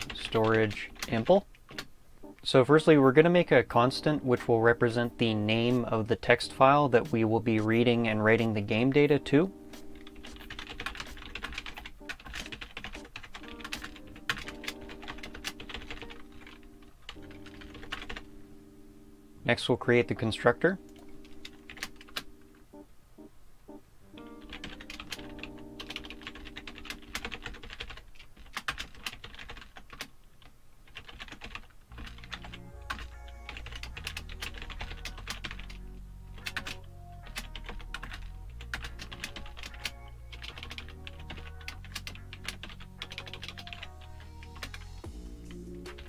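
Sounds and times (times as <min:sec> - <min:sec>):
computer keyboard typing: 0:00.0 - 0:01.9, 0:08.3 - 0:18.3, 0:20.8 - 0:22.5, 0:24.2 - 0:30.1, 0:30.9 - 0:35.8, 0:36.4 - 0:45.0
background music with bass line: 0:31.9 - 0:46.0.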